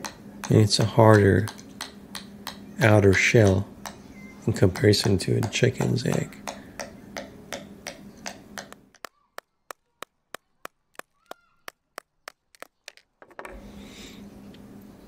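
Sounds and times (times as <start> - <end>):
sharp taps on eggshell: 4.7 - 13.1.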